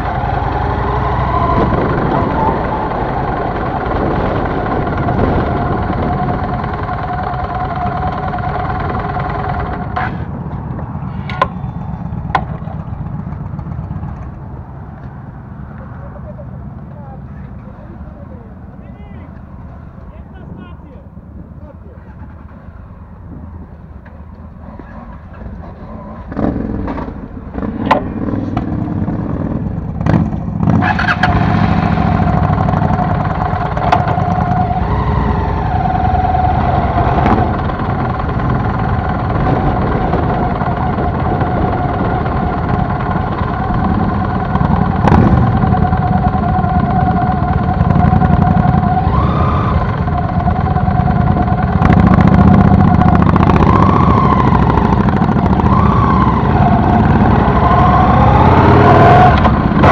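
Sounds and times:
motorcycle engines pulling away: 0:00.0 - 0:20.2, 0:21.1 - 0:59.9.

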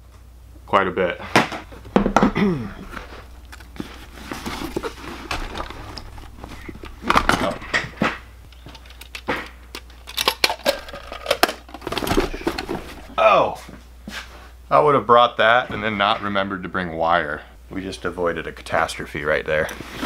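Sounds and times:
drill bits rattling in case: 0:02.8 - 0:13.1.

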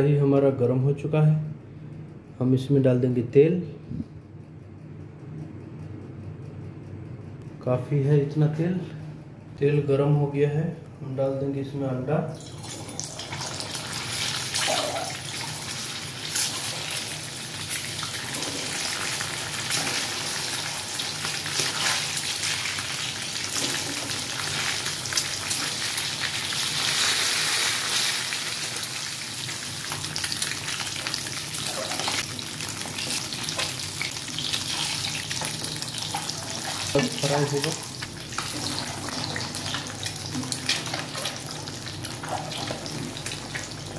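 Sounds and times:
eggs deep-frying in hot oil: 0:12.4 - 0:43.9.

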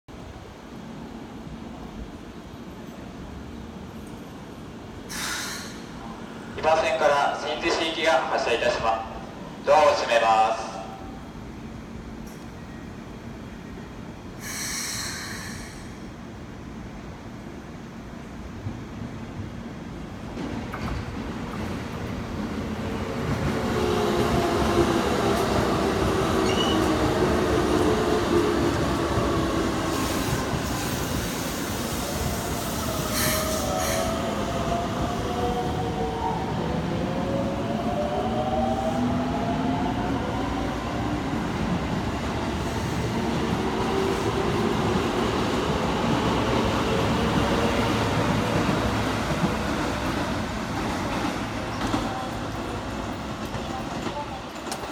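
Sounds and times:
train rumble: 0:14.2 - 0:54.9
high squeal: 0:26.4 - 0:26.9
wheels clacking on rail joints: 0:48.5 - 0:54.9.

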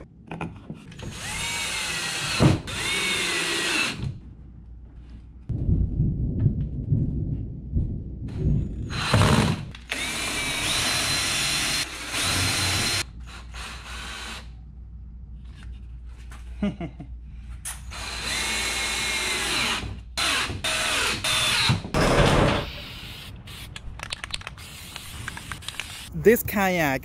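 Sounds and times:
cordless drill driving screws: 0:01.0 - 0:04.1, 0:08.9 - 0:14.4
thunder rumbling: 0:05.5 - 0:09.1.

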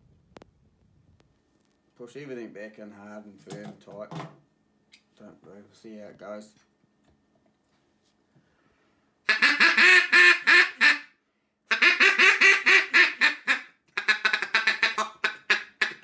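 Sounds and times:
duck call quacks: 0:09.3 - 0:16.0.

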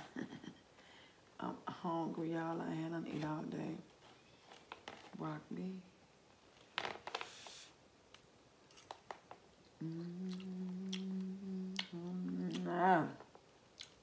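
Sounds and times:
person chewing crunchy food: 0:08.7 - 0:09.3, 0:13.7 - 0:14.0
woman humming mmm: 0:09.8 - 0:13.2.

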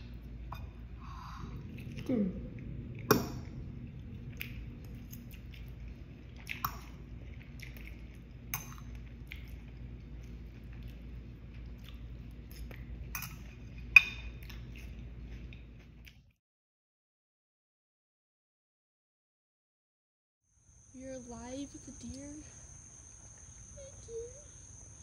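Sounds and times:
low steady hum: 0:00.0 - 0:16.3, 0:20.6 - 0:25.0
chewing: 0:01.5 - 0:16.3.

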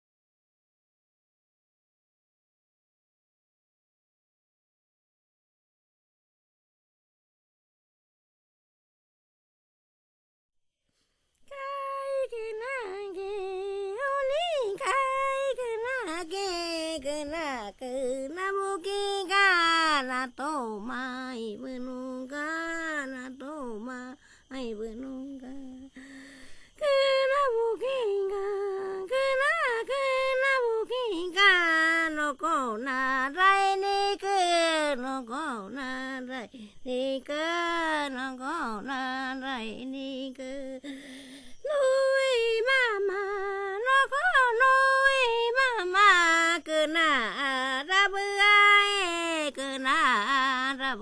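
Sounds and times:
woman singing: 0:11.4 - 0:51.0.

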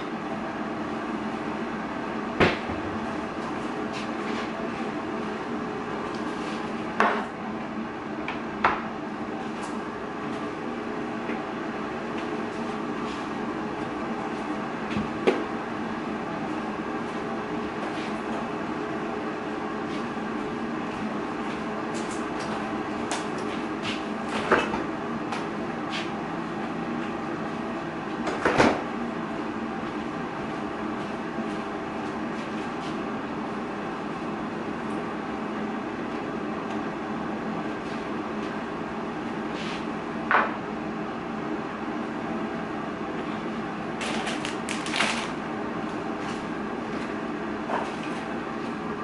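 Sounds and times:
air fryer fan hum: 0:00.0 - 0:49.0.

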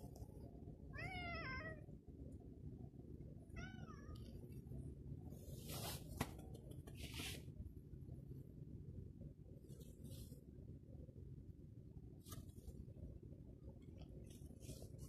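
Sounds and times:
cat meowing: 0:01.0 - 0:01.8, 0:03.5 - 0:04.3
rustling: 0:05.4 - 0:07.4.

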